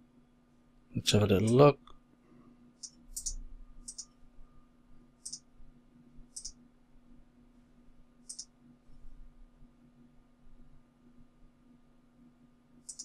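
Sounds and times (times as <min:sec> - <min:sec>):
faint steady hum: 0:00.0 - 0:13.0
mouse button clicking: 0:02.8 - 0:04.1, 0:06.4 - 0:06.6, 0:08.3 - 0:08.5.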